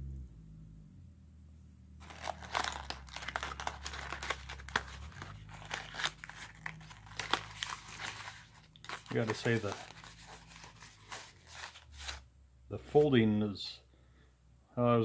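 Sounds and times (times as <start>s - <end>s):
paper crinkling and crackling: 2.0s - 12.2s.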